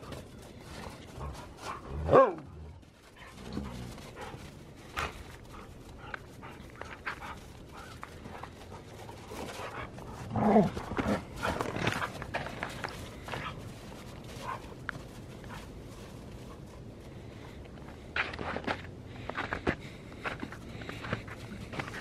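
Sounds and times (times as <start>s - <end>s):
dogs scuffling: 0.0s - 22.0s
growly dog bark: 1.9s - 2.6s.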